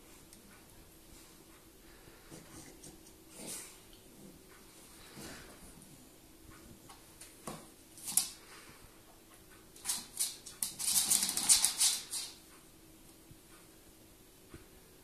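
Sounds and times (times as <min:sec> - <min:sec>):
dog and cat scuffling: 0:00.0 - 0:08.8, 0:09.8 - 0:12.4
rapid scrabbling and clicking: 0:09.8 - 0:12.4.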